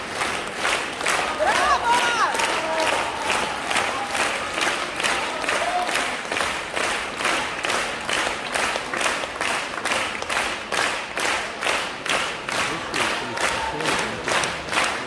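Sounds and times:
audience clapping in unison: 0.0s - 15.0s.

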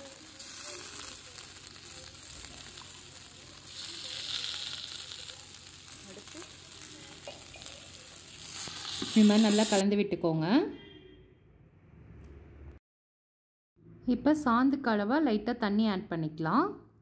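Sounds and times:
masala sizzling in oil: 0.0s - 9.8s.

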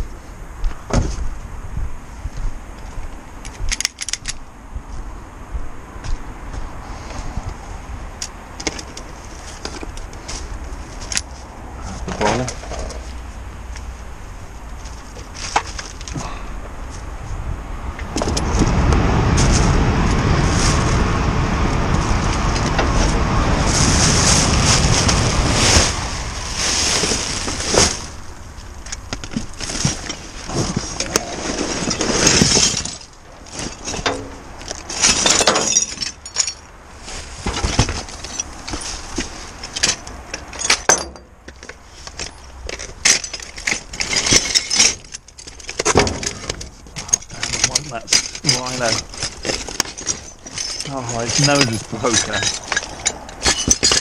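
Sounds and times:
loud steady rumble: 16.0s - 32.4s
plastic bags rustling: 22.0s - 40.0s, 42.2s - 54.0s
items clattering in metal bin: 42.2s - 54.0s.

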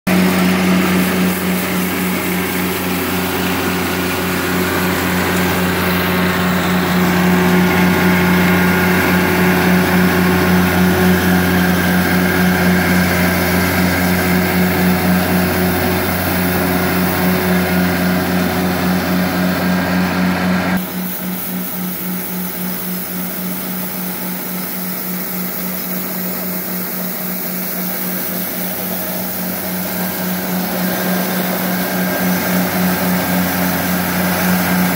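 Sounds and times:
diesel engine running: 0.0s - 34.9s
rotary broom sweeping asphalt: 0.1s - 34.9s.

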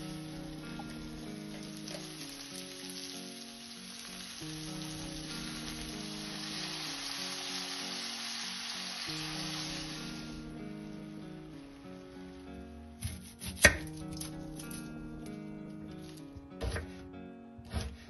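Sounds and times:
burger patties sizzling: 0.0s - 12.8s
background music: 0.0s - 18.0s.

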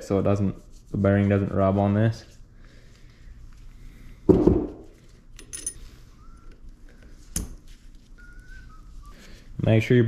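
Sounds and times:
heavy thud on wooden workbench: 4.3s - 4.8s
light metal clinks: 5.4s - 5.9s.

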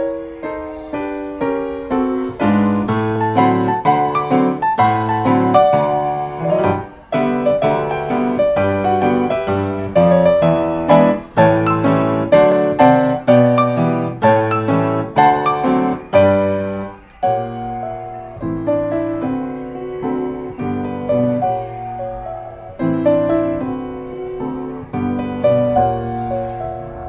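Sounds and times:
ragtime piano music: 0.0s - 27.0s.

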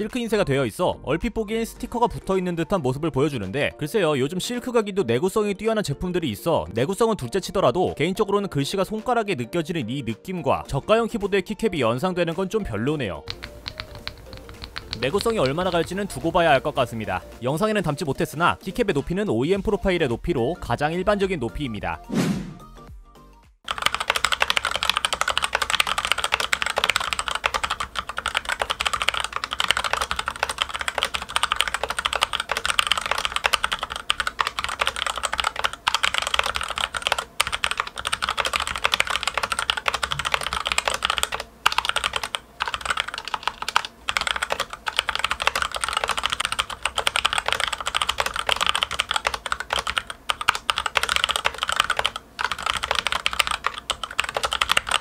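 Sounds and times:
mechanical keyboard typing: 13.2s - 17.2s, 23.7s - 55.0s.

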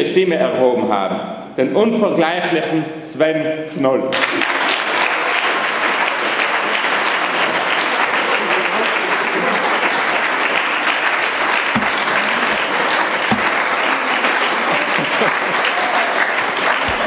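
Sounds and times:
audience applauding: 4.1s - 17.0s.

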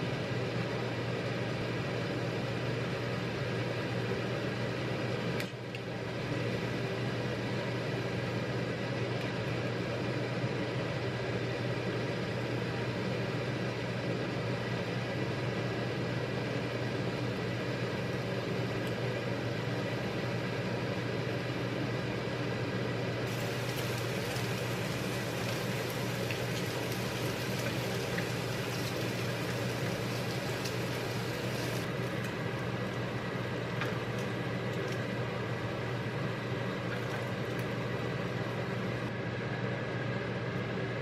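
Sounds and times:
low mechanical hum: 0.0s - 41.0s
meat sizzling in a frying pan: 23.3s - 32.3s.

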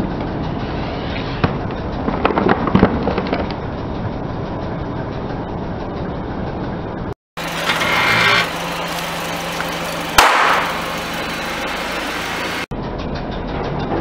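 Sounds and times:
car engine idling: 7.4s - 12.7s
pool ring bursting with pop: 10.1s - 10.9s.

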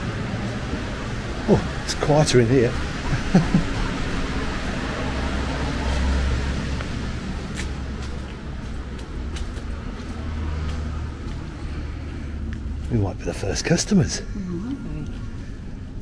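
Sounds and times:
distant road traffic rumble: 0.0s - 16.0s
footsteps on wet stone: 5.6s - 13.4s.

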